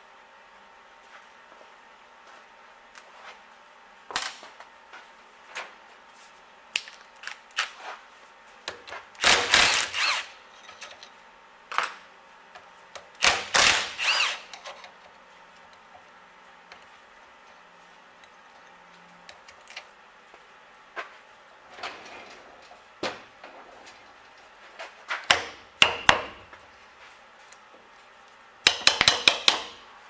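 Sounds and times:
cordless power driver whining: 0:09.2 - 0:10.4, 0:13.2 - 0:14.5.

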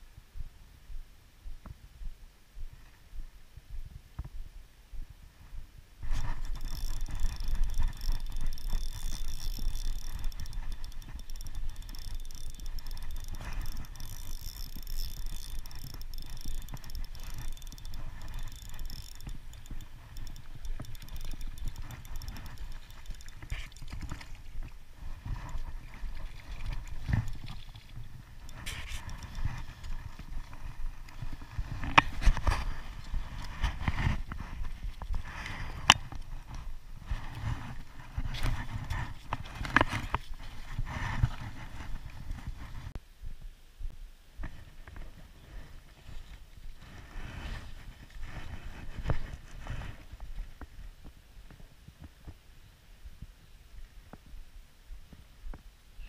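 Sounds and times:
fishing reel ticking: 0:06.0 - 0:42.6.

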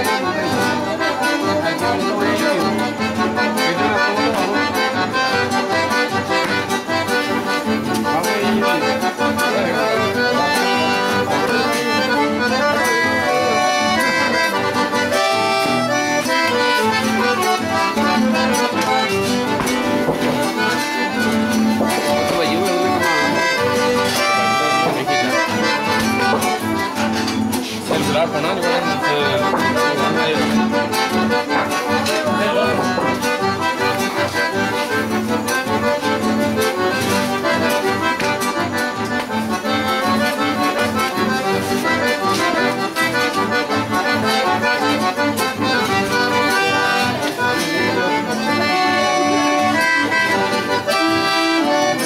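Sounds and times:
acoustic guitar accompaniment: 0:00.0 - 0:52.0
piano accordion folk dance tune: 0:00.0 - 0:52.0.

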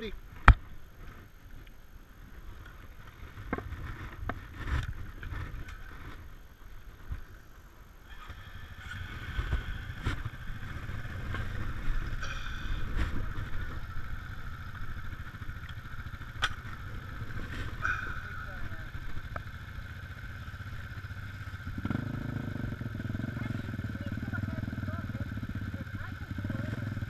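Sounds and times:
off-road engines idling: 0:00.0 - 0:27.0
higher engine tone: 0:08.0 - 0:27.0.

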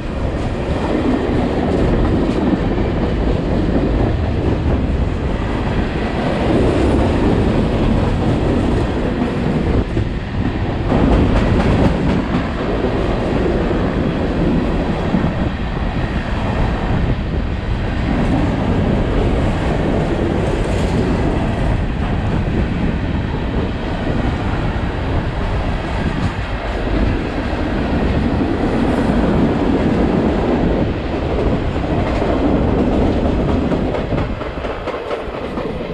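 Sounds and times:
steel wheels rumbling on rail: 0:00.0 - 0:35.9
wheels clacking over rail joints: 0:31.3 - 0:35.9.

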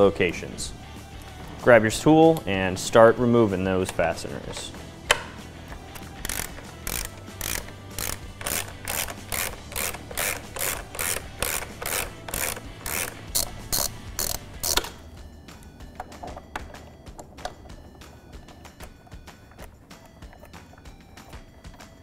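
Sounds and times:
ratchet driver clicking: 0:03.8 - 0:15.0.

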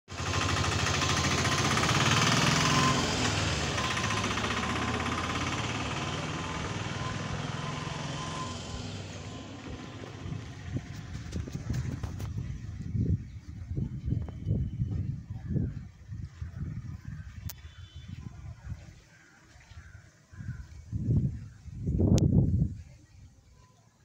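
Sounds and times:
vehicle engine running: 0:00.1 - 0:19.0.

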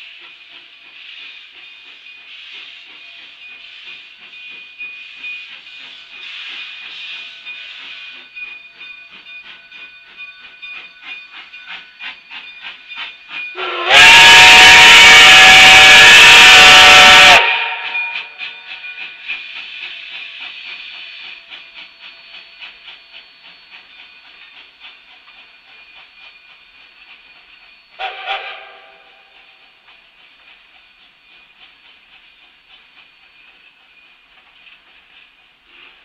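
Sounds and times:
steam locomotive exhaust beats: 0:00.0 - 0:36.0
steam locomotive whistle: 0:13.5 - 0:18.8, 0:27.9 - 0:29.8.

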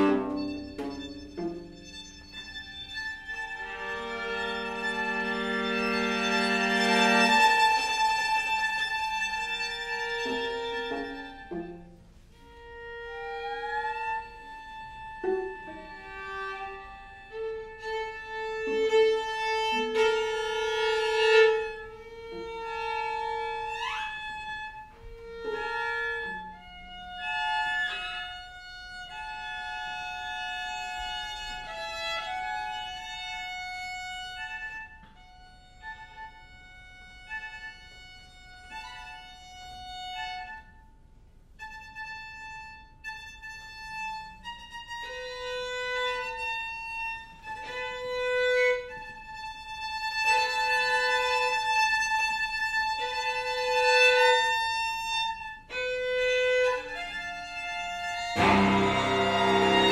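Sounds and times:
string quartet playing bowed notes: 0:00.0 - 0:40.7, 0:41.6 - 0:59.9.

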